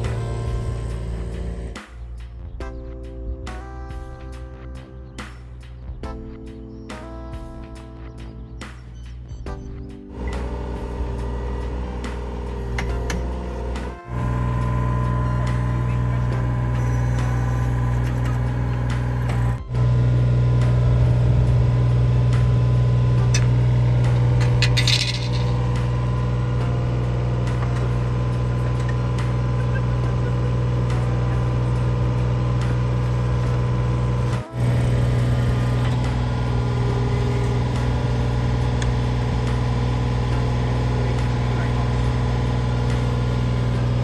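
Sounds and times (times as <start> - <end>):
boring rig engine running: 0.0 - 2.4, 8.8 - 44.0
high clattering: 24.3 - 25.9.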